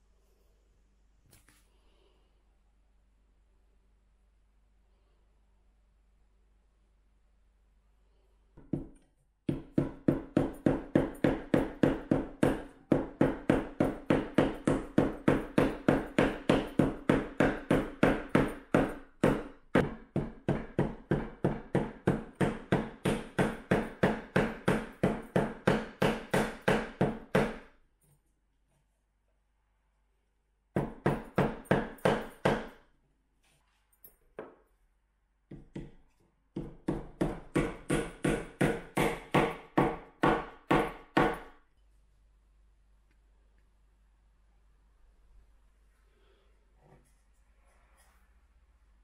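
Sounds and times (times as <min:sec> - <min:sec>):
hammer tapping a nail: 0:08.6 - 0:27.7, 0:30.8 - 0:32.8, 0:35.5 - 0:36.0, 0:36.6 - 0:41.5.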